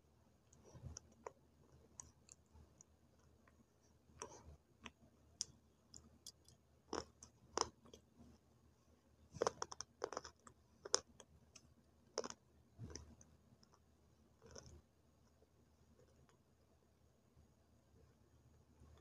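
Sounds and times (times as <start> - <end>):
crunching of clay being chewed: 4.2 - 8.0, 9.4 - 13.8, 14.4 - 14.8.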